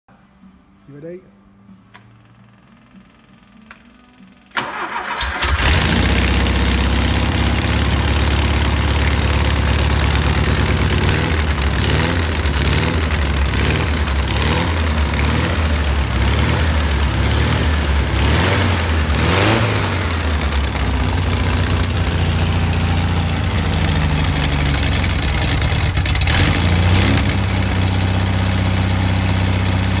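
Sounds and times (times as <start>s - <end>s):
car engine revving and idling: 5.5s - 30.0s.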